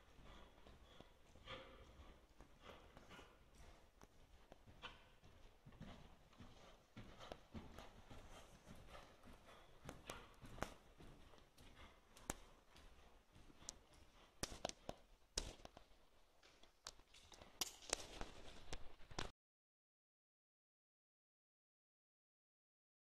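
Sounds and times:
hoofbeats on soft sand: 0.0 - 15.7.

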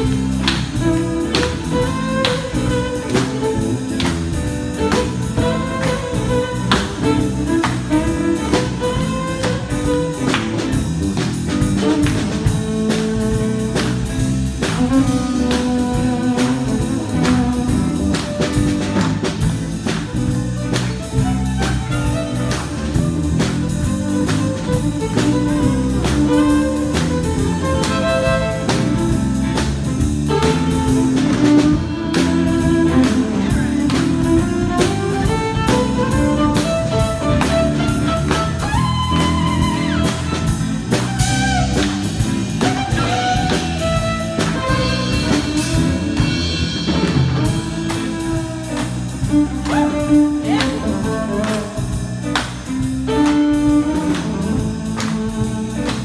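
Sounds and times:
violin playing bowed melody: 0.0 - 10.7, 20.8 - 29.6, 30.2 - 51.9
looped backing with steady beat: 0.0 - 56.0.

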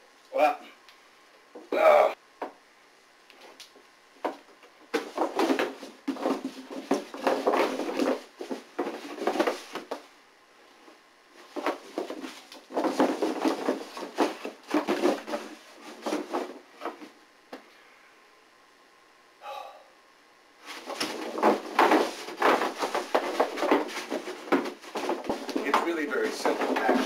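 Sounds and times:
cord knocking against cardboard: 4.2 - 10.0, 11.5 - 17.1, 20.7 - 27.0
rope rustling and scraping: 4.9 - 10.0, 10.6 - 17.2, 20.6 - 27.0.

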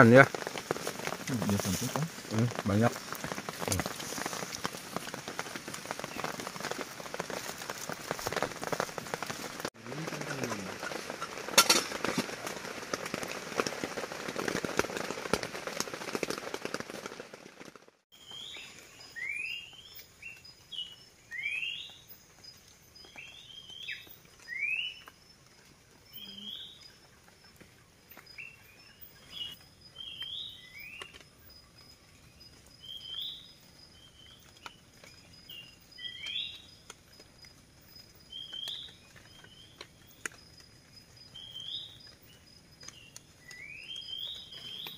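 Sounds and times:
birds chirping: 0.0 - 12.9, 18.2 - 37.0, 37.8 - 44.9
heavy rain pouring: 0.0 - 18.0.

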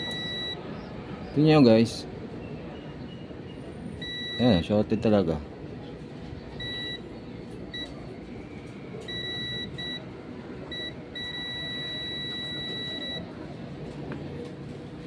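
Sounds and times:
multimeter continuity buzzer beeping: 0.0 - 0.6, 4.0 - 4.5, 6.6 - 7.0, 9.1 - 10.0, 10.7 - 13.2.

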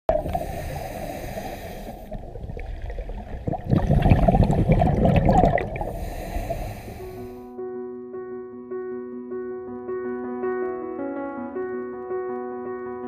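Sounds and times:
regulator hissing inhale: 0.1 - 2.2, 5.8 - 7.5
exhaust bubbles bubbling underwater: 0.1 - 7.0.

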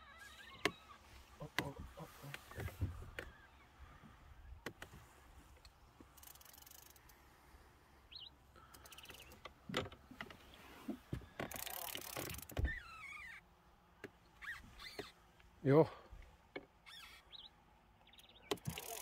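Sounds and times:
fishing reel clicking: 6.2 - 7.2, 11.5 - 12.6, 18.6 - 19.0.

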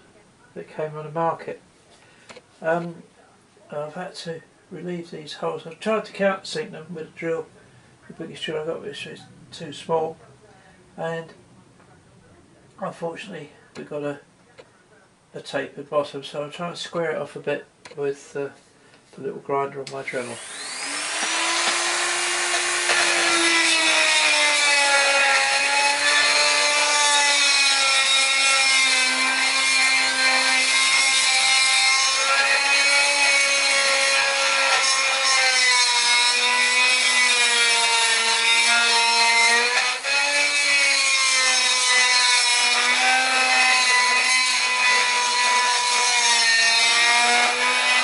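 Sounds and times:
rotary tool grinding metal: 20.1 - 48.0.

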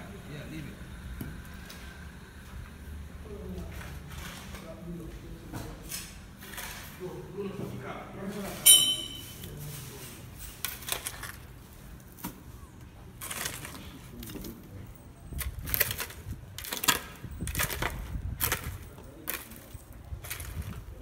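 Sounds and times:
crunching scrapes in gravelly dirt: 15.3 - 21.0.

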